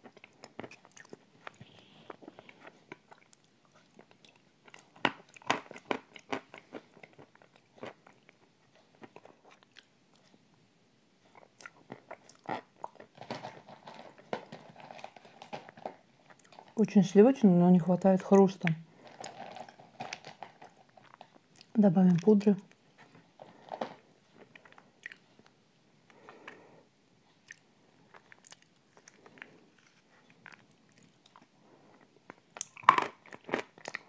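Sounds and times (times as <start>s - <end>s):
wet chewing and lip smacks: 0.0s - 10.4s, 11.2s - 13.1s, 21.0s - 21.8s, 24.4s - 25.5s, 27.3s - 31.5s, 32.3s - 34.0s.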